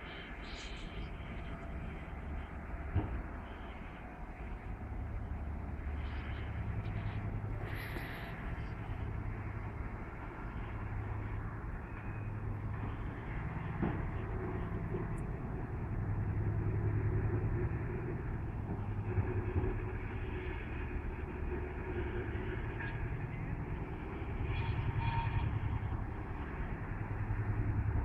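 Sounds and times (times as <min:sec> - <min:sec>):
distant freight train rumble: 0:00.0 - 0:28.0
faint high squeal: 0:24.4 - 0:25.9.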